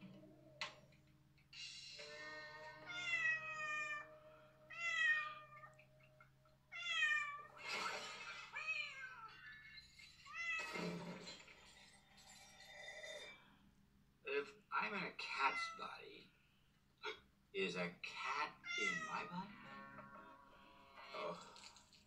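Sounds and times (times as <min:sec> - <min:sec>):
faint background music: 0:00.0 - 0:13.6, 0:17.0 - 0:22.0
cat meowing: 0:02.1 - 0:07.6, 0:08.5 - 0:10.8, 0:18.6 - 0:20.2.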